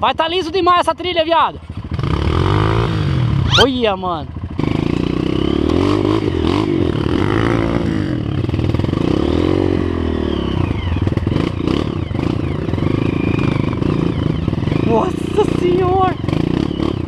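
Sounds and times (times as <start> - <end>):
dirt bike engine revving: 1.6 - 17.0.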